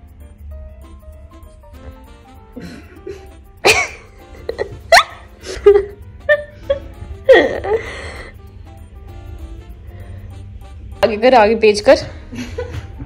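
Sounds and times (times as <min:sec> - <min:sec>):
background music: 0:00.0 - 0:13.0
woman laughing: 0:02.6 - 0:08.2, 0:12.3 - 0:13.0.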